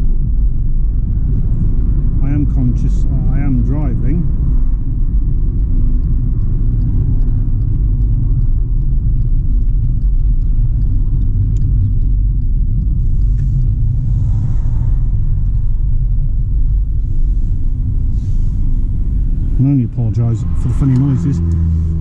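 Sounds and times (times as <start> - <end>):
car driving rumble from inside: 0.0 - 22.0
wind buffeting at car window: 0.0 - 22.0.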